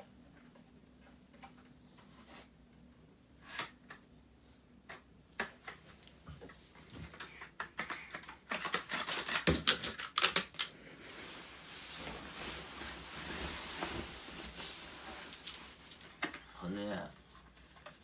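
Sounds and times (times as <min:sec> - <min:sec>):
duvet rustling: 0:11.0 - 0:16.2.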